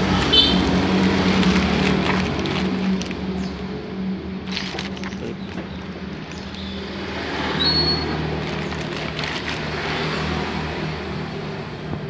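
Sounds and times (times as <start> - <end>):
plastic bag crinkling: 0.0 - 3.3, 4.4 - 6.7, 8.2 - 10.0
engine humming: 0.0 - 12.0.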